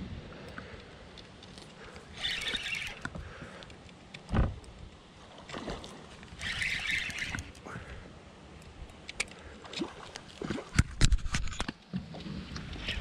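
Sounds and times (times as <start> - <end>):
dull thump: 4.3 - 4.6.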